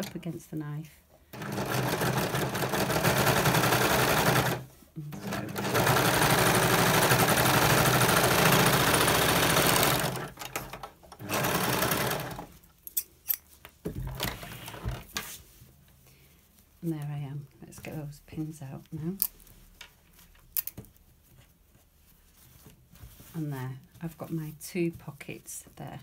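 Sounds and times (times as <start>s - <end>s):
overlocker stitching: 1.4s - 12.6s.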